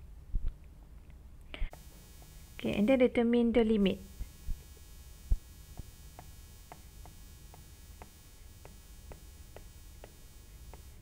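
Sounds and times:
stylus tapping on tablet screen: 0:05.8 - 0:10.9.

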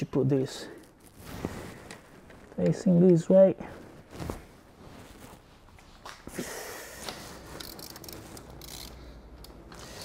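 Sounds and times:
rapid ratchet ticks: 0:07.6 - 0:10.0.

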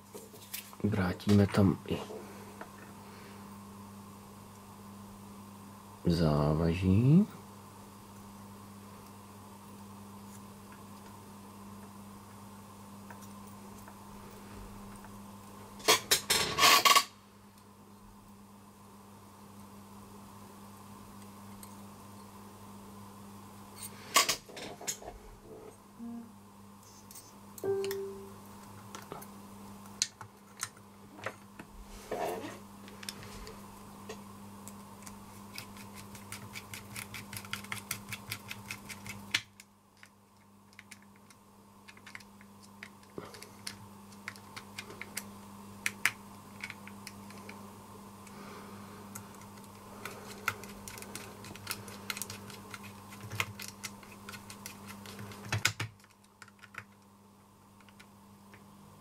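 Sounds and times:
steady low hum: 0:17.1 - 0:59.0
small parts clicking and tapping: 0:34.6 - 0:47.6, 0:49.1 - 0:58.6.

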